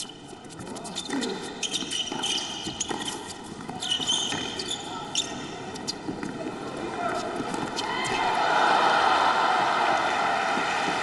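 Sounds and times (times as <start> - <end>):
murmur of indoor crowd: 0.0 - 11.0.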